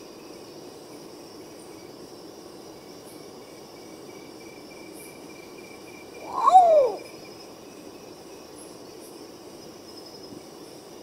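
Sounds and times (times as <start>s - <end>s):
high insect trill: 0.0s - 11.0s
bird mournful descending call: 6.2s - 7.1s.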